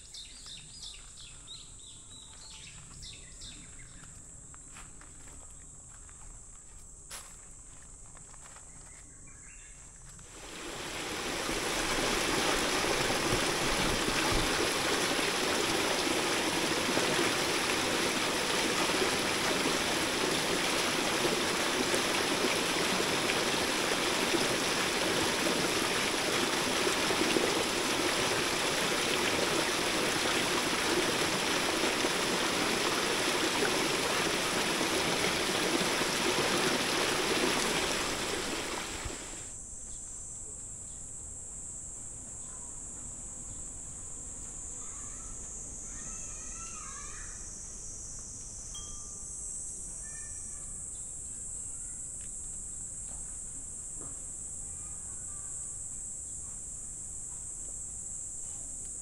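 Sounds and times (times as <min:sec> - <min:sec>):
stream rushing and splashing: 0:10.4 - 0:39.5.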